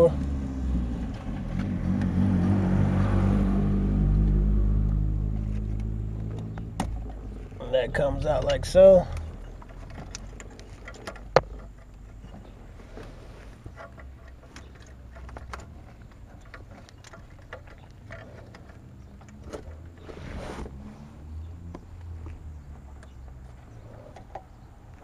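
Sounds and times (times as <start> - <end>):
low steady rumble: 0.0 - 24.0
plastic connectors clicking and rattling: 8.4 - 12.4, 13.6 - 19.9
brief rustle: 9.1 - 21.2.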